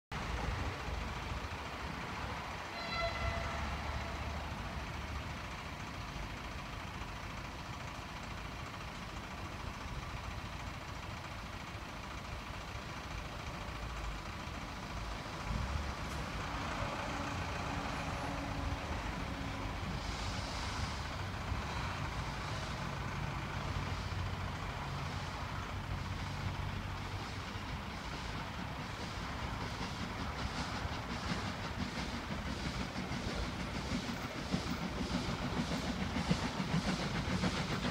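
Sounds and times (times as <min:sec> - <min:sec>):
road traffic rumble: 0:00.1 - 0:37.9
steam locomotive exhaust chuffs: 0:00.2 - 0:37.9
short horn toot: 0:02.7 - 0:04.0.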